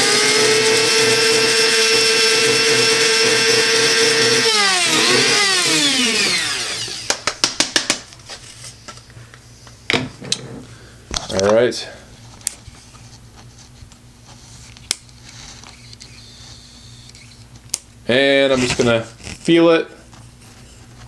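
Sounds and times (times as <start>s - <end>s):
coffee grinder whining: 0.0s - 7.4s, 15.3s - 17.6s.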